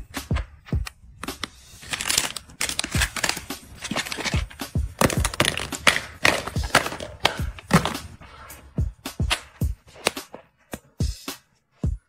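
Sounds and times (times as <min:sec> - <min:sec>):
plastic packaging crinkling: 0:01.5 - 0:08.0
small bottles knocking: 0:02.3 - 0:08.2.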